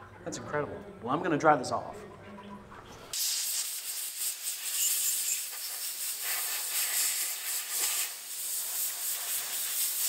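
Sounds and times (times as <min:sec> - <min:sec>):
compressed-air blow gun hissing: 0:03.2 - 0:10.0.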